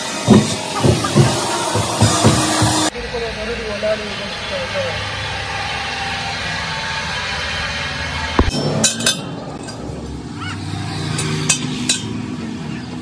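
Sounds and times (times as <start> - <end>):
engine hum: 0.0 - 13.0
metal clinks on wheel rim: 11.1 - 12.2.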